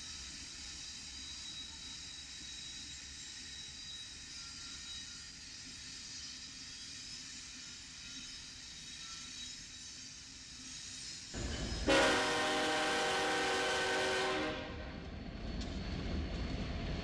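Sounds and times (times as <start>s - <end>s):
train rumbling on rails: 0.0s - 17.0s
locomotive air horn blast: 11.8s - 14.9s.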